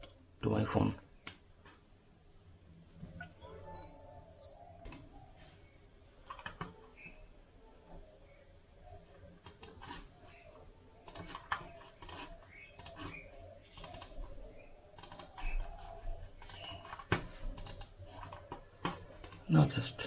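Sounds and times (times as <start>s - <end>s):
mouse and keyboard clicking: 4.8s - 5.1s, 9.4s - 10.1s, 11.0s - 19.5s.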